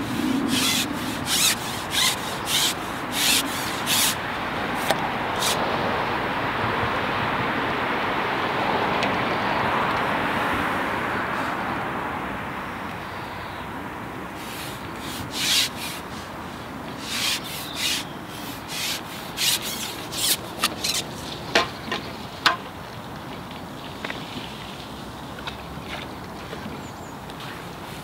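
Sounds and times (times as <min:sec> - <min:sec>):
fishing pole sections scraping: 0:00.0 - 0:04.2, 0:04.8 - 0:05.6, 0:14.4 - 0:21.7
sharp clicks of pole sections: 0:00.0 - 0:04.2, 0:04.8 - 0:05.6, 0:14.4 - 0:16.1, 0:16.9 - 0:22.7
steady rushing noise: 0:00.0 - 0:12.6.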